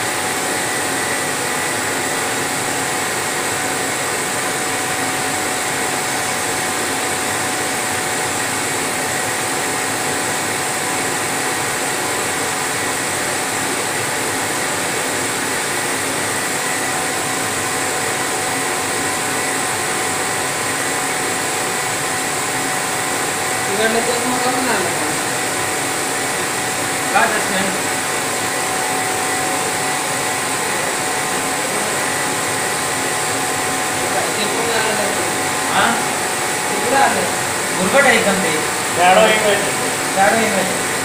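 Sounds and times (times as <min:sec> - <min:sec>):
laser engraver whirring: 0:00.0 - 0:41.0.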